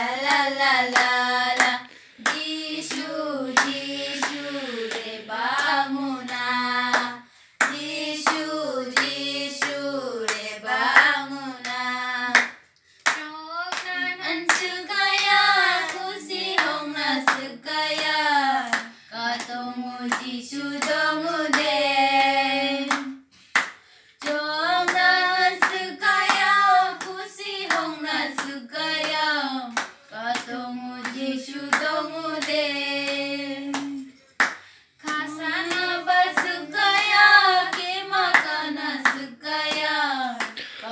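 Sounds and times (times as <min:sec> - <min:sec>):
young voices singing together: 0:00.0 - 0:23.3, 0:24.2 - 0:34.1, 0:35.0 - 0:40.9
hand claps: 0:00.0 - 0:40.9.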